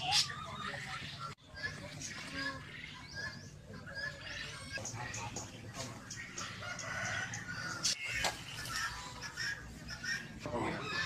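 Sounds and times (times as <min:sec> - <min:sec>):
fowl clucking: 0:00.0 - 0:11.0
rooster crowing: 0:06.6 - 0:08.0.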